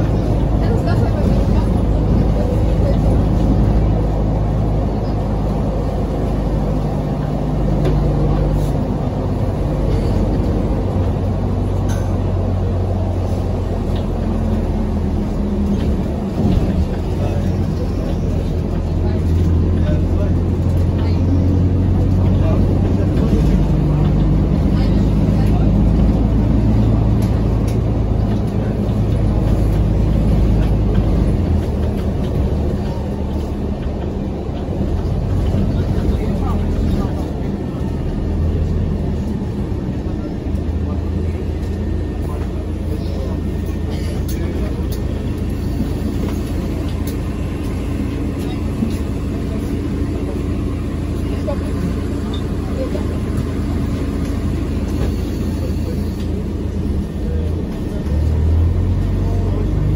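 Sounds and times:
bus engine hum: 0.0s - 59.9s
road rumble: 0.0s - 59.9s.

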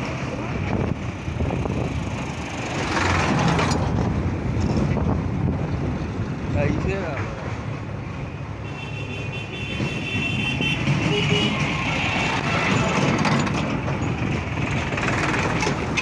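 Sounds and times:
tractor engines rumbling: 0.0s - 16.0s
wind noise on microphone: 0.5s - 6.9s.

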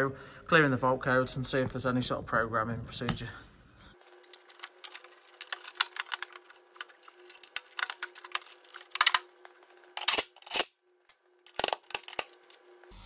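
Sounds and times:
metal heat shield crinkling: 4.0s - 12.8s.

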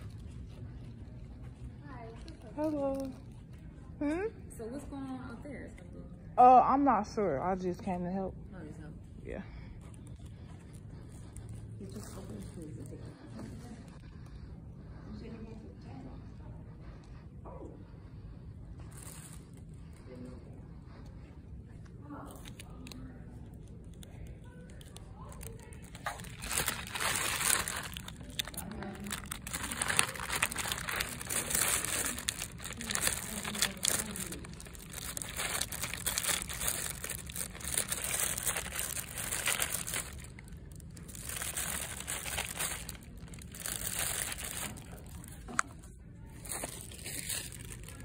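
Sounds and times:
crinkling and rustling: 22.2s - 48.0s.

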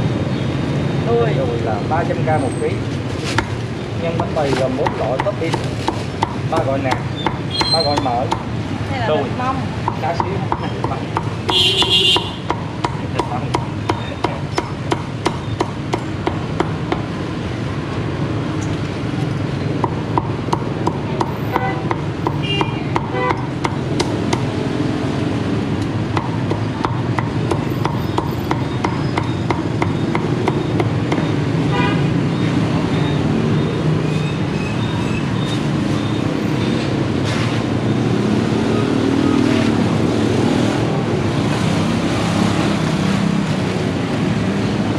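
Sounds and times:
steady background noise: 0.0s - 44.9s
cleaver chopping on wooden block: 4.2s - 8.5s, 9.8s - 17.1s, 19.8s - 24.6s, 26.1s - 31.3s.

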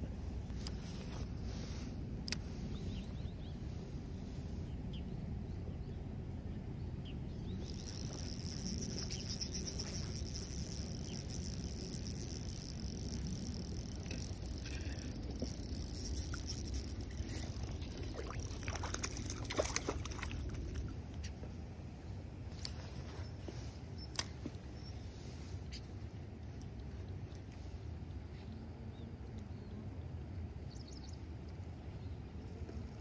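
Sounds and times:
low outdoor rumble: 0.0s - 33.0s
fishing reel cranking: 7.6s - 19.5s
fish splashing at surface: 7.7s - 20.8s.

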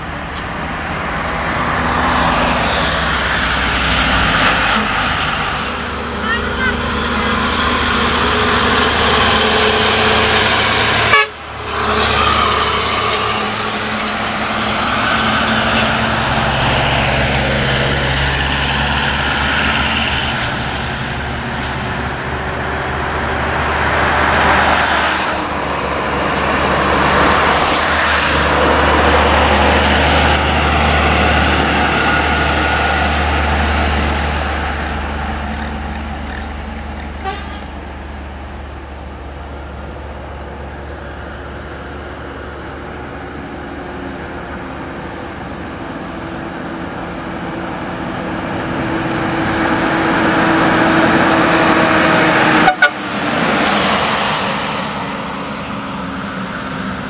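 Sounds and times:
trucks and cars passing: 0.0s - 57.0s
vehicle horn: 10.8s - 13.9s, 37.2s - 37.7s, 52.6s - 53.1s.

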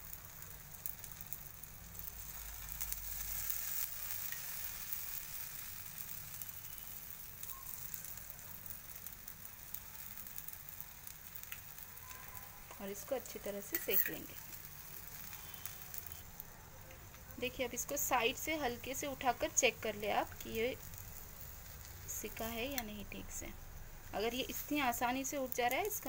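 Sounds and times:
batter sizzling on a griddle: 0.0s - 26.0s.

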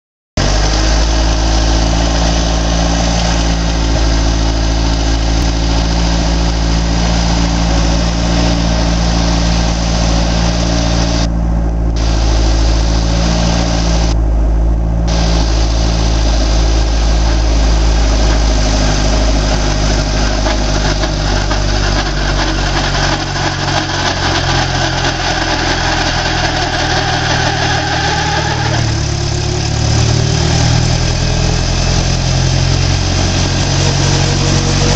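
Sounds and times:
helicopter piston engine running: 0.4s - 11.3s, 12.0s - 14.2s, 15.1s - 34.9s
helicopter rotor spinning up: 0.4s - 11.3s, 12.0s - 14.2s, 15.1s - 34.9s.

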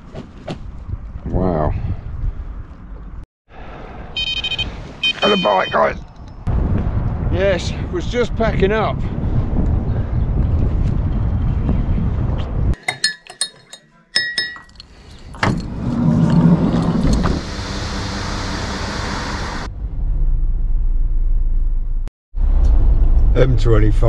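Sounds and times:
wind buffeting microphone: 0.5s - 3.2s, 6.4s - 12.8s
vehicle driving hum: 15.1s - 24.0s.

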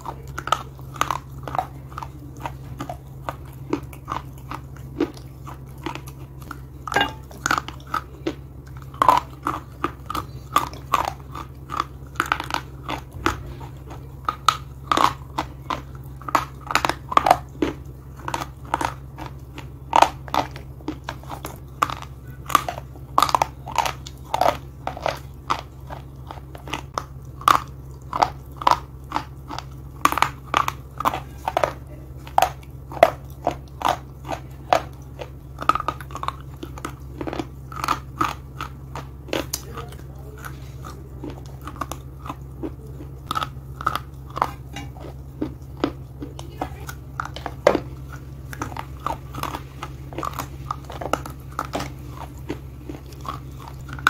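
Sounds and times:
chewing hard crunchy pieces: 0.0s - 54.0s
constant low hum: 0.0s - 54.0s.

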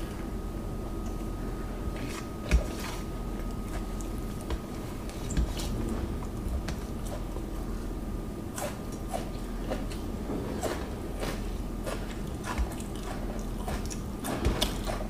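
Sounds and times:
faint steady hum: 0.0s - 15.0s
chewing: 8.5s - 15.0s.

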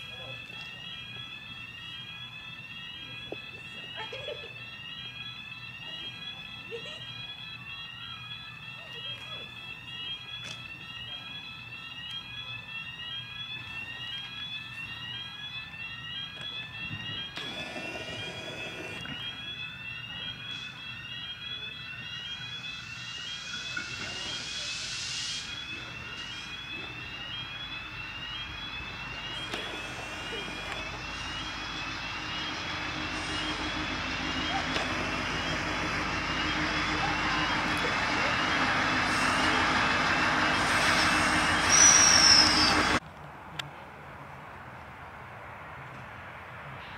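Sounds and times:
electronic railway warning alarm: 0.0s - 43.0s
low hum: 22.8s - 43.0s.

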